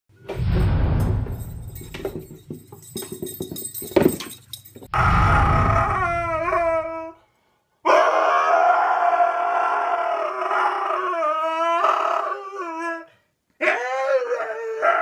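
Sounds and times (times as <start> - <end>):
husky howling: 5.0 - 7.2, 7.9 - 15.0.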